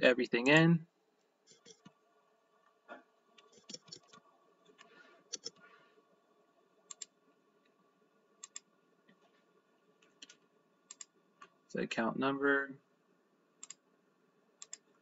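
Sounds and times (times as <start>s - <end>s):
quiet keyboard typing: 1.5s - 2.0s, 3.4s - 5.6s, 6.9s - 7.2s, 8.4s - 9.4s, 10.0s - 11.6s, 13.6s - 13.8s, 14.6s - 15.0s
computer mouse clicks: 3.4s - 5.6s, 6.9s - 7.1s, 8.4s - 9.2s, 10.0s - 11.5s, 13.6s - 13.8s, 14.6s - 14.9s.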